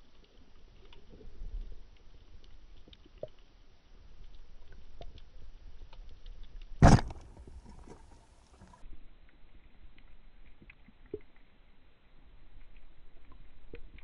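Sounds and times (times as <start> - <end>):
low water hiss: 0.0 - 14.0
speargun bang: 6.8 - 7.2.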